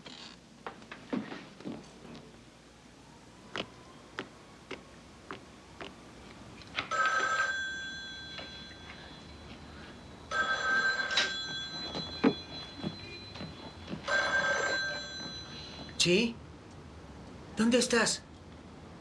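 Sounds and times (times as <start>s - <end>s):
telephone bell ringing: 6.9s - 16.0s.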